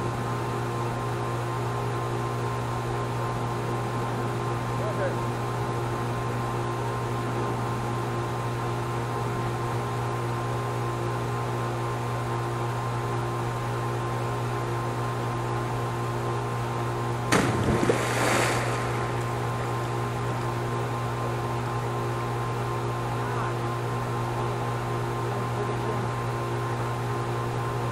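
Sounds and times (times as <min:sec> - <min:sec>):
steady mechanical hum: 0:00.0 - 0:27.9
body splashing into pool: 0:17.3 - 0:19.9.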